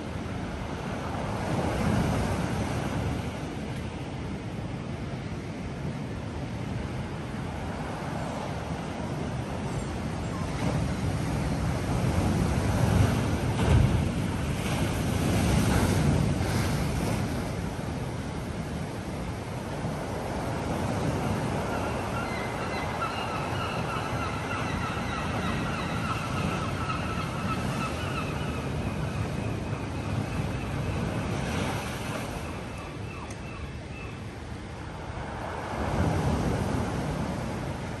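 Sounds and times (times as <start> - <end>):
surf washing over a slipway: 7.0 - 25.0
seagulls calling: 21.3 - 31.3, 32.3 - 34.2.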